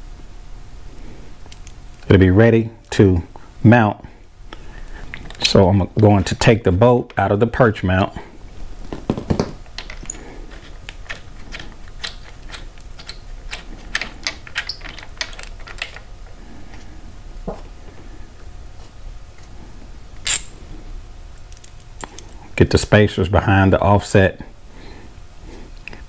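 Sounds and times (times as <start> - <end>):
metal hardware clicking: 20.2 - 20.5.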